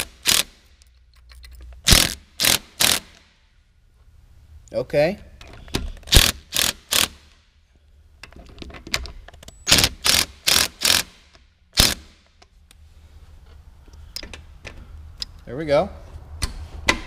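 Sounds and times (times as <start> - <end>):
ratchet wrench clicking: 0.0 - 3.2, 6.0 - 7.3, 9.7 - 11.2.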